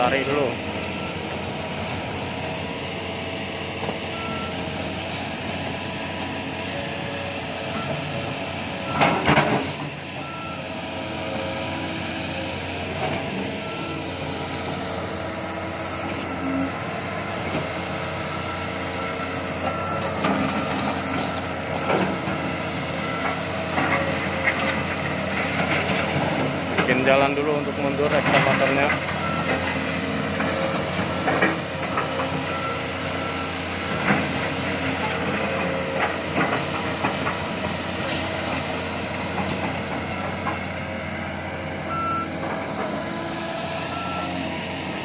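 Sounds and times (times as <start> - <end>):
excavator diesel engine under load: 0.0 - 45.0
travel alarm beeping: 41.8 - 42.4, 43.8 - 44.4.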